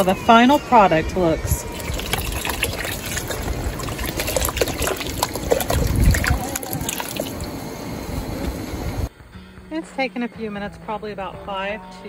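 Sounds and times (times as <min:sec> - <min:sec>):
water pouring into pot: 0:01.6 - 0:07.7.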